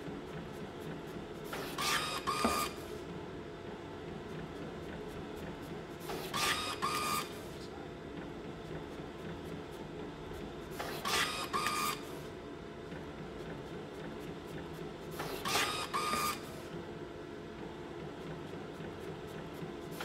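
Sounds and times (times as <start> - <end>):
label printer mechanical whir: 0.0 - 20.0
printer mechanism bursts: 1.5 - 2.8, 6.0 - 7.4, 10.7 - 12.1, 15.1 - 16.6.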